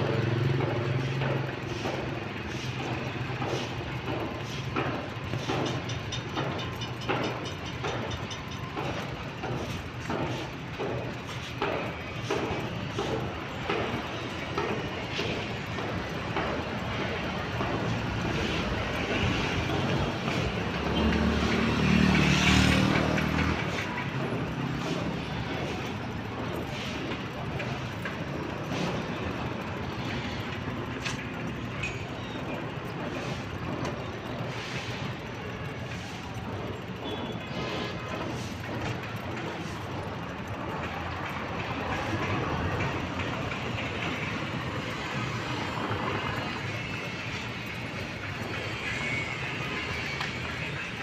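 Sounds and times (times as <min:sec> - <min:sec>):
road traffic: 0:00.0 - 0:51.0
vehicle engine passing: 0:18.2 - 0:26.5.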